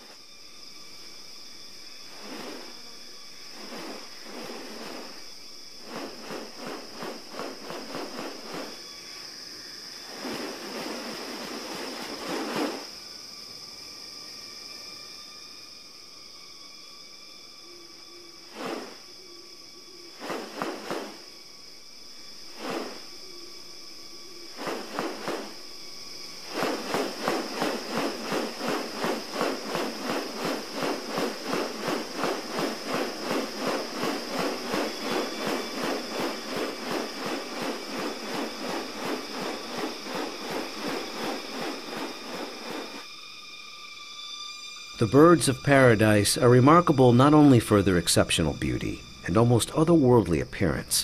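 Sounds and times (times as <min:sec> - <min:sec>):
high insect drone: 0:00.0 - 0:51.0
bird wings rustling swishes: 0:01.8 - 0:13.0, 0:18.5 - 0:19.1, 0:20.1 - 0:21.4, 0:22.5 - 0:23.2, 0:24.4 - 0:43.1.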